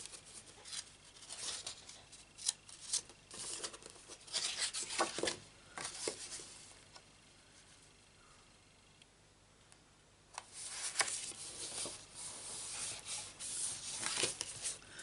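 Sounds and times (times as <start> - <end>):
paper rubbing and rustling: 0.0 - 6.5, 10.5 - 14.8.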